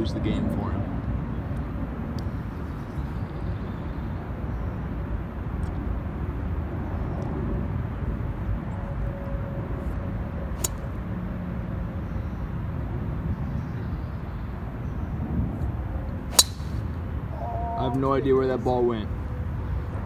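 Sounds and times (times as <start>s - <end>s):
low outdoor rumble: 0.0s - 20.0s
golf club striking ball: 16.3s - 17.0s.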